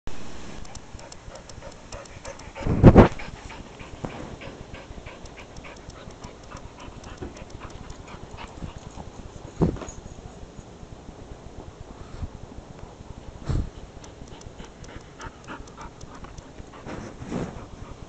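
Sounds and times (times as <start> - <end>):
small dog panting: 0.6 - 9.6, 13.4 - 18.0.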